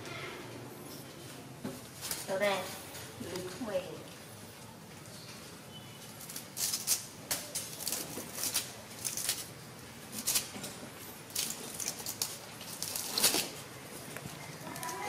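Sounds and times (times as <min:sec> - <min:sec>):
monkey gnawing coconut husk: 0:06.2 - 0:15.0.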